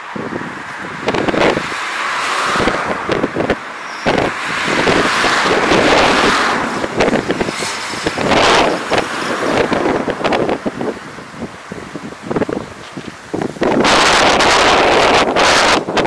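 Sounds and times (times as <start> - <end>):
road traffic passing: 0.0 - 16.0
wind buffeting microphone: 0.0 - 16.0.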